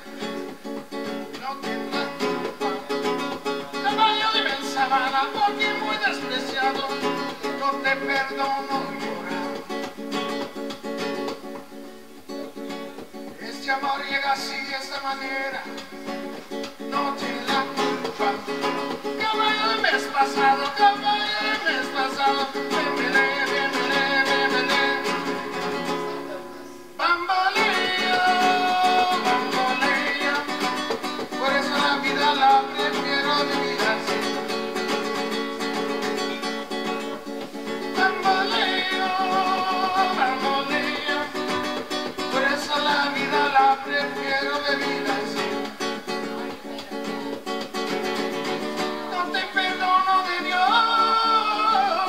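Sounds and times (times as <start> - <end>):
acoustic guitar: 0.0 - 52.0
person singing: 1.3 - 9.8, 16.8 - 35.1, 37.8 - 47.4, 48.9 - 52.0.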